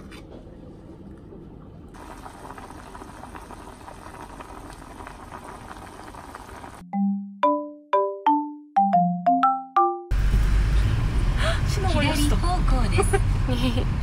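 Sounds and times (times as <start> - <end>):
pot of noodles boiling: 1.9 - 6.8.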